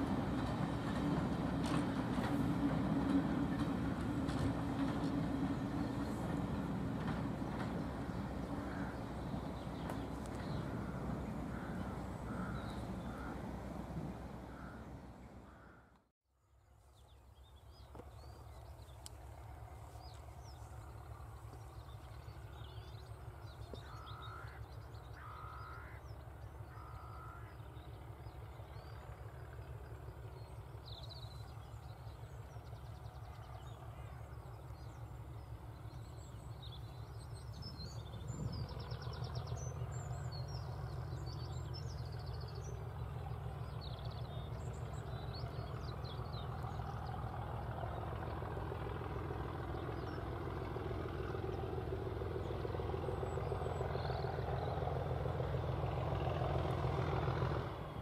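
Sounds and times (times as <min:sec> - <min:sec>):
diesel locomotive engine rumble: 0:00.0 - 0:16.1, 0:16.9 - 0:58.0
small birds chirping: 0:05.4 - 0:16.0.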